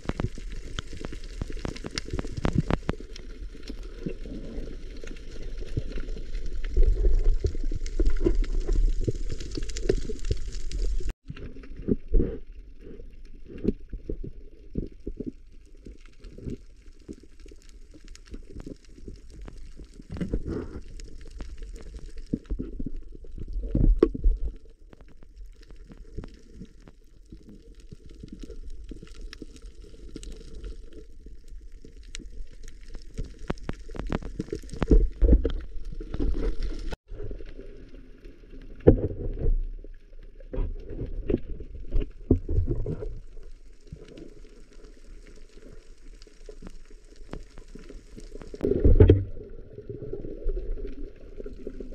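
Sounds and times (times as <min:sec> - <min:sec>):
sharp clicks and crackles: 0:00.0 - 0:51.9
underwater rumble and gurgling: 0:00.0 - 0:51.9.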